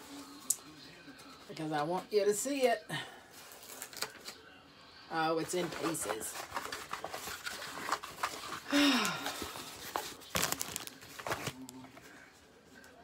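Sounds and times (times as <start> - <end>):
packaging crinkling: 3.5 - 4.3, 5.6 - 12.1
person sighing: 8.7 - 9.5.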